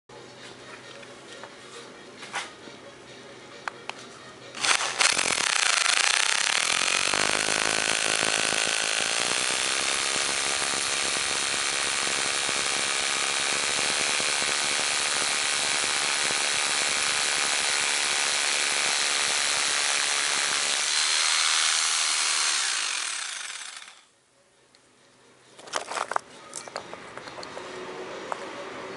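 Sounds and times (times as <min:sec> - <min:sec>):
rotary hammer drilling into stone: 0:04.6 - 0:24.0.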